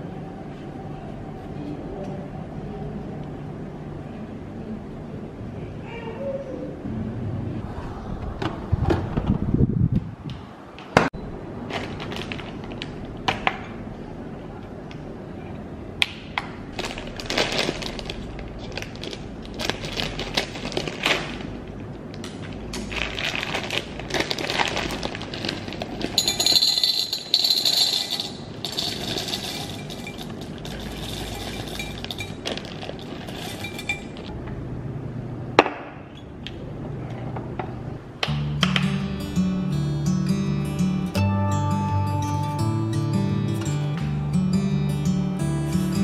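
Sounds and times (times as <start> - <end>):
plastic bag crinkling: 11.6 - 12.9, 16.7 - 21.8, 22.4 - 26.8, 28.0 - 34.3
chocolate chips rattling into glass: 24.4 - 34.3.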